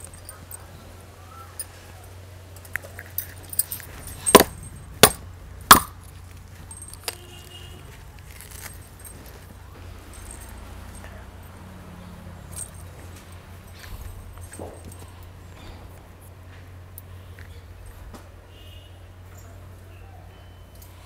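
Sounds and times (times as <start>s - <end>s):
metallic clinks of copper tumbler: 0.0s - 11.8s, 12.4s - 16.3s.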